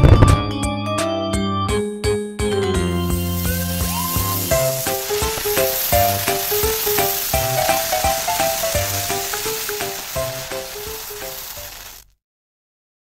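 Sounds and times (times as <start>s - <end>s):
light tune with bass line: 0.0s - 4.9s
firework crackling and sizzling: 3.0s - 12.2s.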